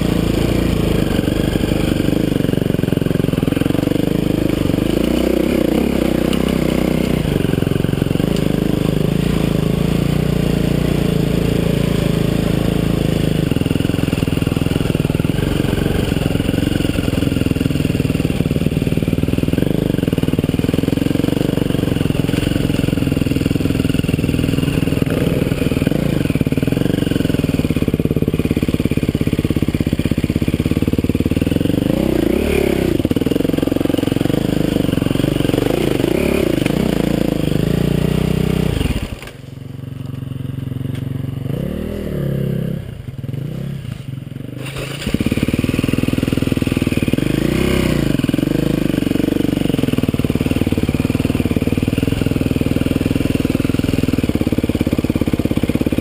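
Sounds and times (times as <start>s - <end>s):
bike crunching through dry leaves: 0.0s - 37.0s, 43.9s - 56.0s
dirt bike engine: 0.0s - 56.0s.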